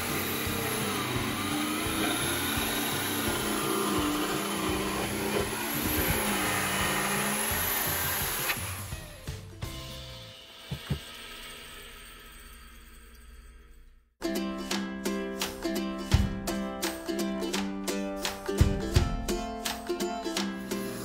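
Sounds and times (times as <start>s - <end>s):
jigsaw cutting plywood: 0.0s - 9.4s, 10.4s - 11.4s.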